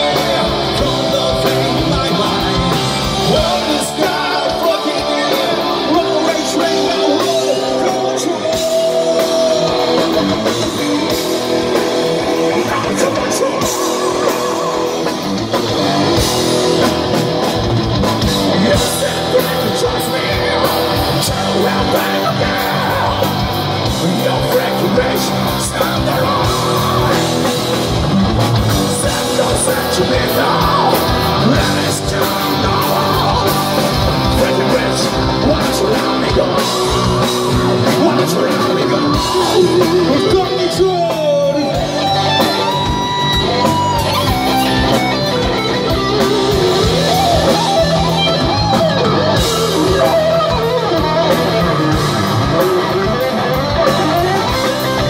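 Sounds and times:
man singing: 0.0s - 17.1s, 18.1s - 55.0s
rock band playing live: 0.0s - 55.0s.

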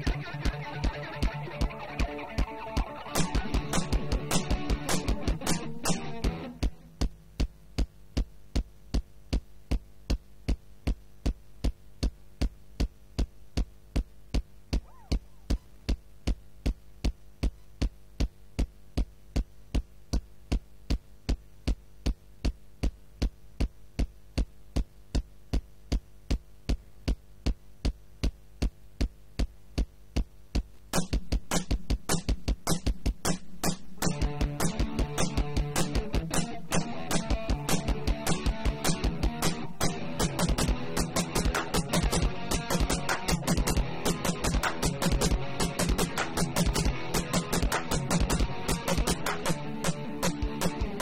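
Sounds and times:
electric guitar: 0.0s - 7.1s, 32.2s - 51.0s
drum machine beat: 0.0s - 51.0s
faint steady hum: 0.0s - 51.0s.

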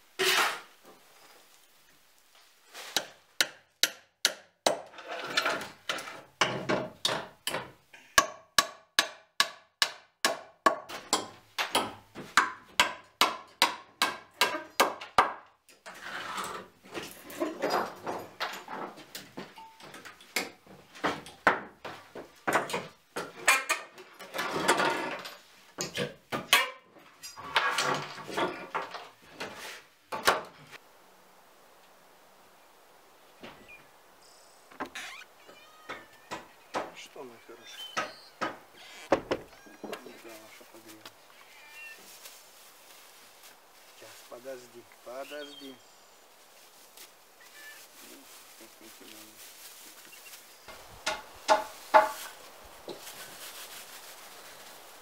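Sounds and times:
nails scraping out of boards: 0.2s - 0.8s, 4.8s - 7.4s, 15.8s - 18.8s, 22.7s - 30.7s
hammer striking wooden boards: 3.0s - 4.9s, 6.4s - 15.4s, 51.0s - 52.2s.

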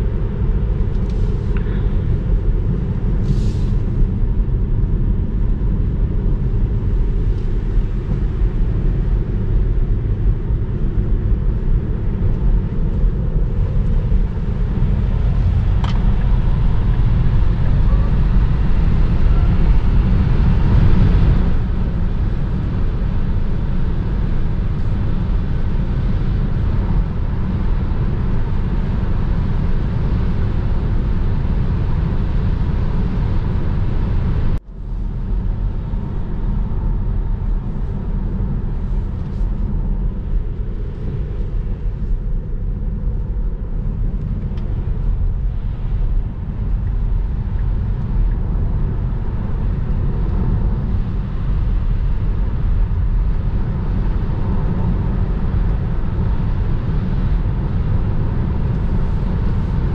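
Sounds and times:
wind hiss: 0.9s - 4.2s.

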